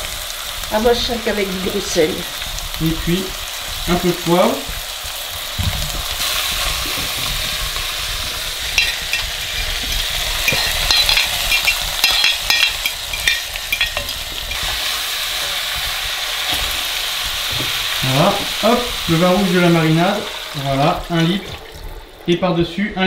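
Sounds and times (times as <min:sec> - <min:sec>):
meat sizzling in oil: 0:00.0 - 0:22.3.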